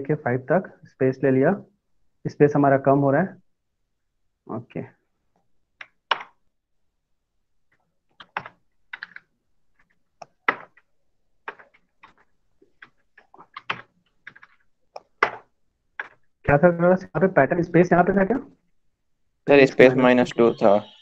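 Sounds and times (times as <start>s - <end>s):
computer keyboard keystrokes: 8.1s - 10.9s, 11.5s - 16.2s.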